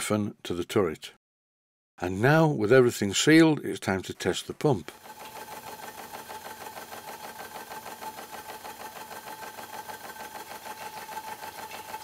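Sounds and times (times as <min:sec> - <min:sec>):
model engine mechanical beat: 0:04.9 - 0:12.0.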